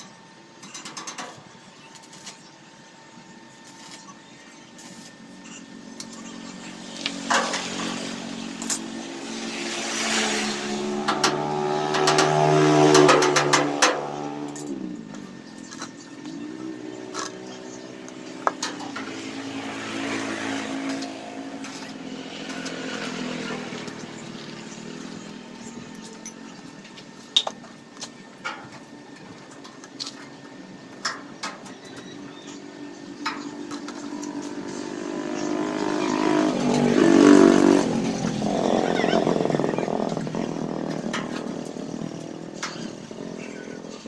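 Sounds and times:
vehicle engine running: 0:04.3 - 0:44.0
sharp clicks and knocks: 0:11.0 - 0:15.9, 0:18.1 - 0:19.2.

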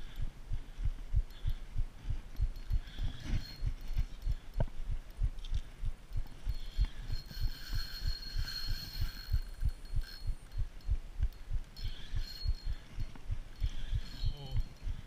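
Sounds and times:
faint high whine: 0:01.3 - 0:15.0
fishing reel cranking: 0:06.5 - 0:10.3.

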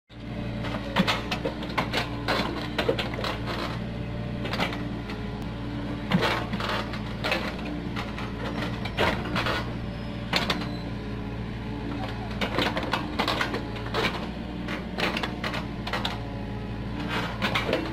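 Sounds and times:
excavator diesel engine running: 0:00.1 - 0:17.9
excavator bucket clanking: 0:00.6 - 0:03.8, 0:04.4 - 0:04.9, 0:06.1 - 0:10.8, 0:12.0 - 0:16.3, 0:17.0 - 0:17.9.

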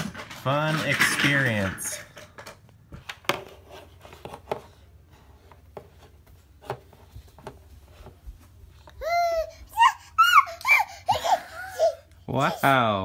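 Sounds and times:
toddler vocal call: 0:09.0 - 0:12.0.

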